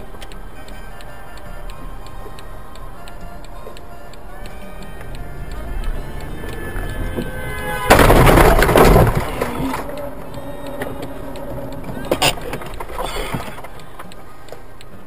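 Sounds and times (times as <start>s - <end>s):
car crash: 6.8s - 14.0s.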